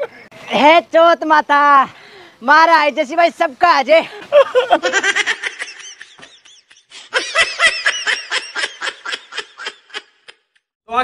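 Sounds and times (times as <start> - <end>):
high-pitched laughing: 4.3 - 10.6.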